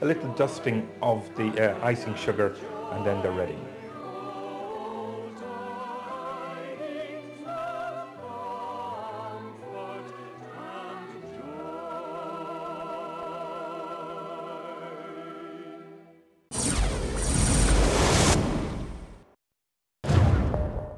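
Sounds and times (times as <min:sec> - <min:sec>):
singers with vibrato: 0:00.0 - 0:15.9.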